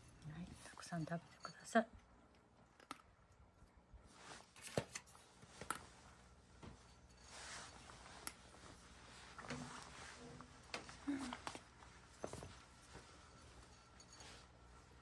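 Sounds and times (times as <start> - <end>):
cat crunching dry kibble: 2.0 - 5.8.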